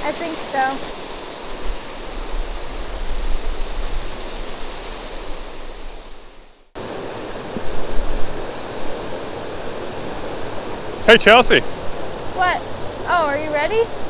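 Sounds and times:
steady rush of water: 0.0 - 14.0
water rushing over spillway: 0.0 - 14.0.

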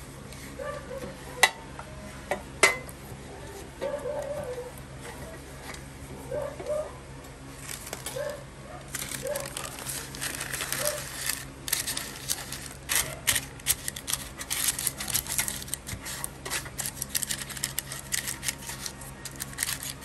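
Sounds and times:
baking paper crinkling: 7.5 - 20.0.

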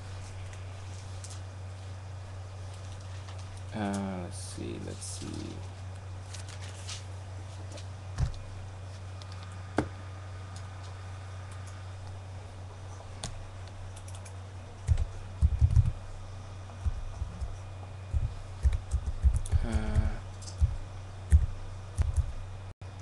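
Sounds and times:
low electrical hum: 0.0 - 23.0
typing on computer keyboard: 13.9 - 14.3
murmured voice: 19.5 - 20.3.

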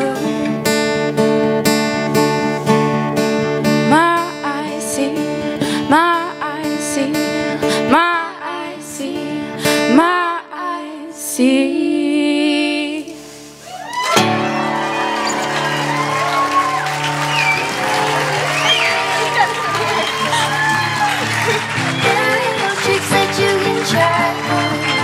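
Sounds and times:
women singing: 0.0 - 0.5, 3.9 - 13.3, 21.8 - 25.0
acoustic guitars strummed: 0.0 - 10.4, 14.2 - 25.0
audience applauding: 13.7 - 25.0.

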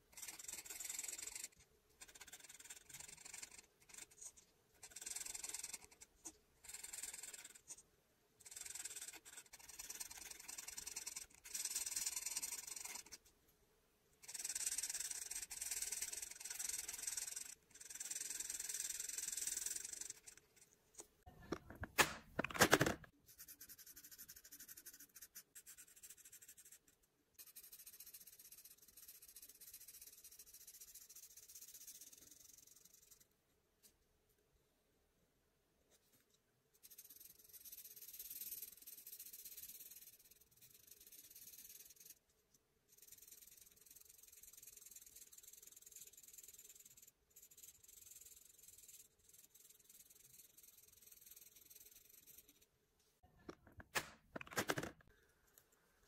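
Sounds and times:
marker scratching on paper: 0.0 - 7.8, 8.4 - 13.3, 14.2 - 20.7, 23.3 - 33.2, 36.8 - 42.2, 42.9 - 52.7.

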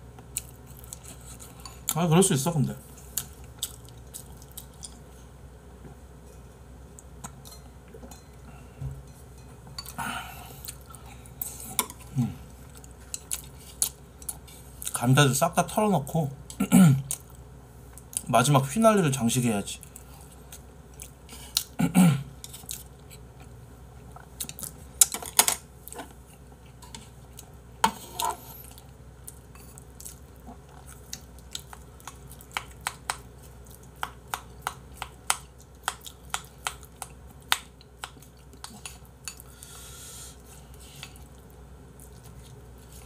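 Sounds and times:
chopsticks and spoon clinking on bowls: 7.3 - 8.4, 9.0 - 10.0.

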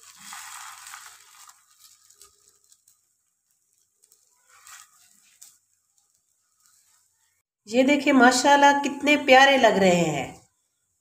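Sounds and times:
faint sizzle of frying: 0.0 - 7.6.

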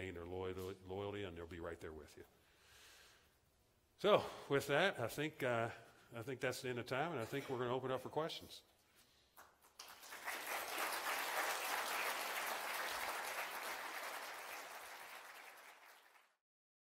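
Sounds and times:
audience applauding: 9.4 - 16.4.

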